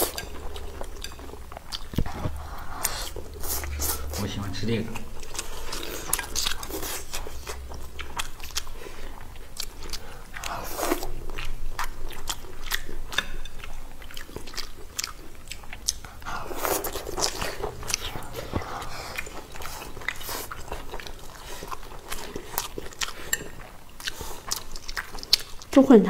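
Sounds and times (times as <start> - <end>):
chewing and biting food: 4.9 - 25.8.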